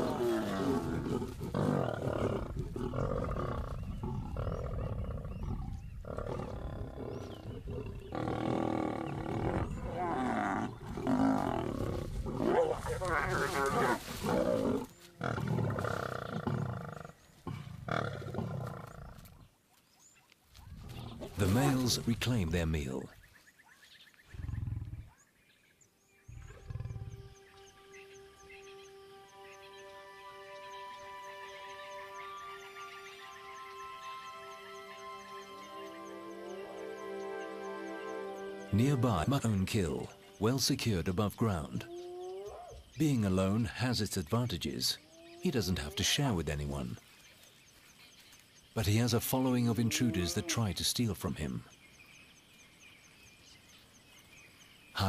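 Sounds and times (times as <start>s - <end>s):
lions snarling and growling: 0.0s - 19.4s, 24.3s - 25.3s, 26.3s - 27.4s
soft music with held tone: 27.2s - 40.5s.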